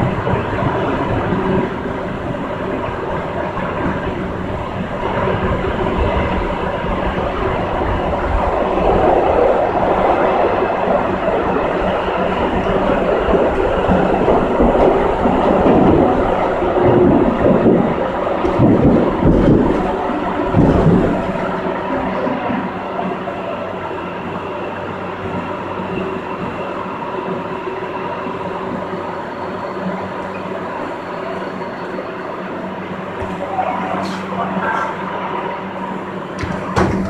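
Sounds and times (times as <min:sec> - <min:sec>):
train wheels rumbling on track: 0:00.0 - 0:37.0
heavy knocks: 0:16.9 - 0:21.6, 0:36.4 - 0:37.0.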